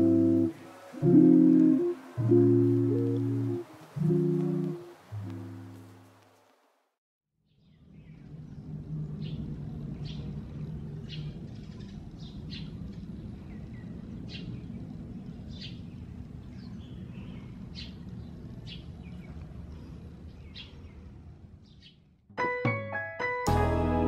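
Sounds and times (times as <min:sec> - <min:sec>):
soft piano notes: 0:00.0 - 0:06.2.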